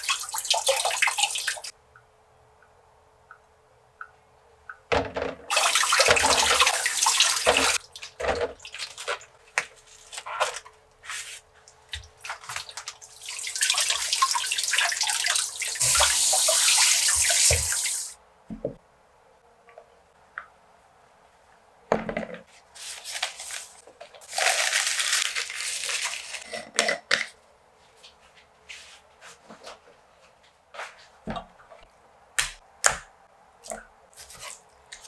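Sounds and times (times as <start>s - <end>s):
tap water splashing: 4.7s - 9.7s, 11.9s - 17.9s
plastic packaging crinkling: 8.8s - 10.8s, 22.8s - 26.5s.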